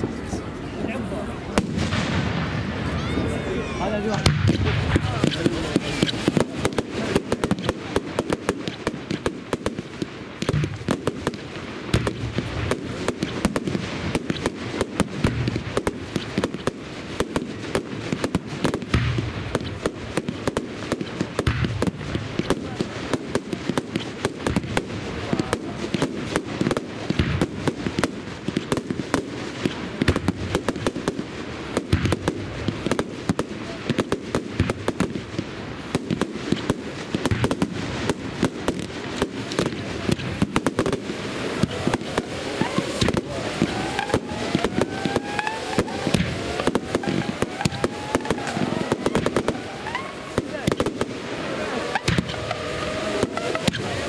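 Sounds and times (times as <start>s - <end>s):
fireworks bangs and crackling: 0.0s - 54.0s
fireworks shells booming: 1.4s - 54.0s.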